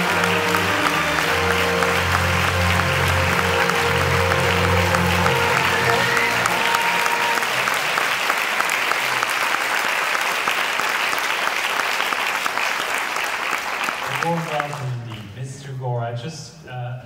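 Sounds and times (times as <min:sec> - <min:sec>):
stage music: 0:00.0 - 0:10.0
audience applauding: 0:00.0 - 0:15.4.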